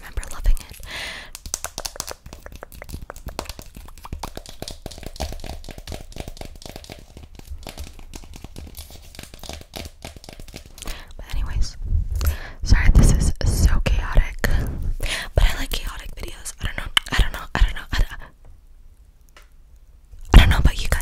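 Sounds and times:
tongue clicks and smacks: 0:00.2 - 0:05.3, 0:16.9 - 0:17.2.

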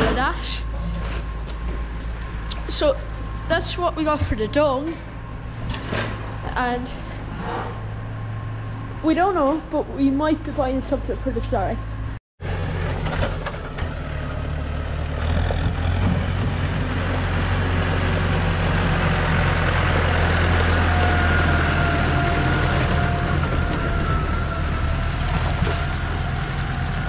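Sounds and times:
tractor engine running: 0:00.0 - 0:27.0.

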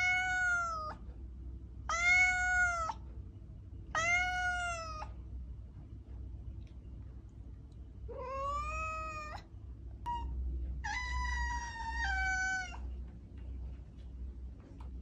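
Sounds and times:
cat meowing: 0:00.0 - 0:01.0, 0:01.9 - 0:03.0, 0:03.9 - 0:05.2, 0:08.1 - 0:09.5, 0:10.1 - 0:12.9
cat chirp: 0:10.1 - 0:12.8.

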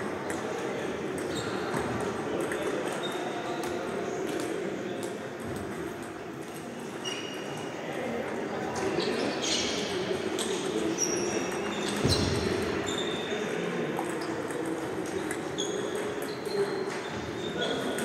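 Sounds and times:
background murmur: 0:00.0 - 0:18.0
table tennis balls clicking: 0:13.9 - 0:16.5.

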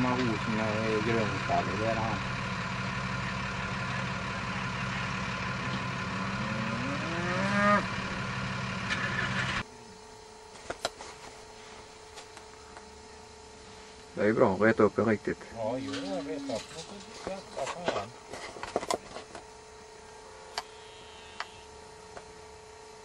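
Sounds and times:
engine idling hum: 0:00.0 - 0:10.6
cow mooing: 0:06.2 - 0:08.2.

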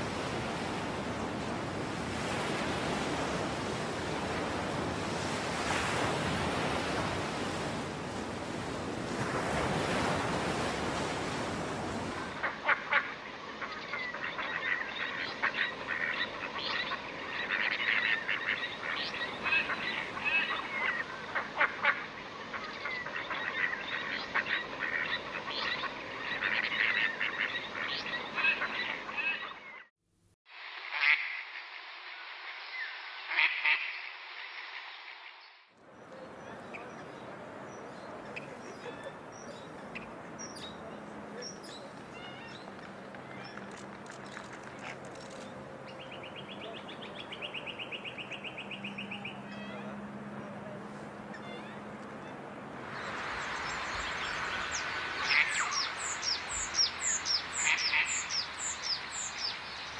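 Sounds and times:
water noise: 0:00.0 - 0:29.8, 0:30.5 - 0:59.9
wind: 0:00.0 - 0:59.9
duck calls: 0:12.4 - 0:29.5, 0:55.2 - 0:56.4, 0:57.1 - 0:58.5
ducklings peeping: 0:54.2 - 0:59.6.

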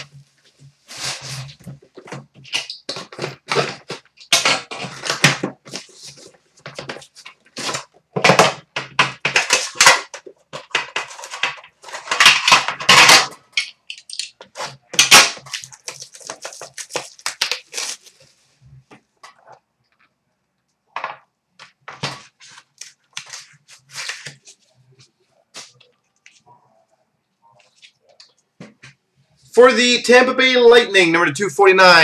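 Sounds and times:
cellophane crinkling and rustling: 0:00.0 - 0:20.0, 0:21.9 - 0:26.5.

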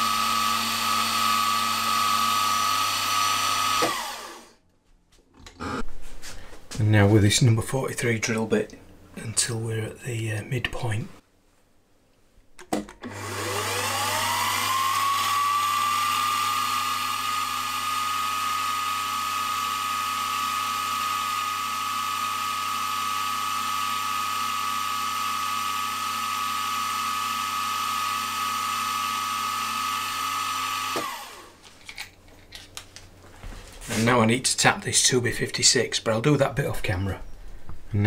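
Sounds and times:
drill bit drilling metal: 0:00.0 - 0:04.5, 0:13.1 - 0:31.4
milling machine motor whining: 0:00.0 - 0:04.5, 0:13.0 - 0:31.5.

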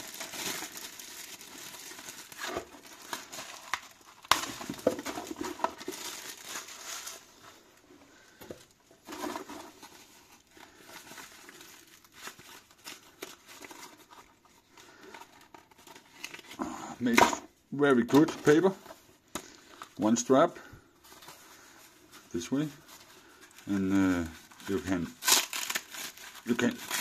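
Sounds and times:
plastic bag crinkling: 0:00.0 - 0:17.2, 0:17.8 - 0:27.0.

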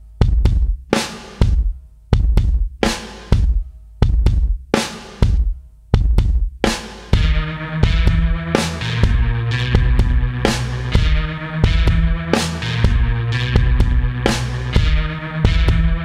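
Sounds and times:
kick and snare drum beat: 0:00.0 - 0:16.0
bass line: 0:07.1 - 0:16.0
synth notes: 0:07.2 - 0:16.0.

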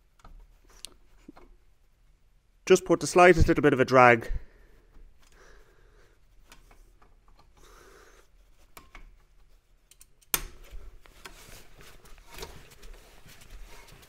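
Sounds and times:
screwdriver clicking and scraping: 0:08.6 - 0:13.0.

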